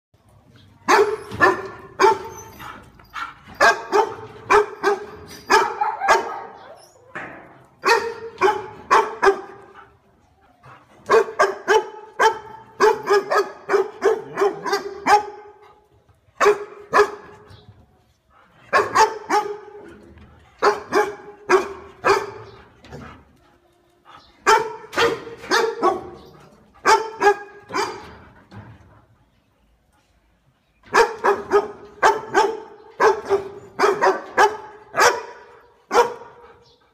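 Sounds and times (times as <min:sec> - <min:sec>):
dog barking: 0:00.9 - 0:02.3, 0:03.6 - 0:06.6, 0:07.8 - 0:09.6, 0:11.1 - 0:15.5, 0:16.4 - 0:17.3, 0:18.7 - 0:19.8, 0:20.6 - 0:22.6, 0:24.5 - 0:26.2, 0:26.8 - 0:28.0, 0:30.9 - 0:36.4.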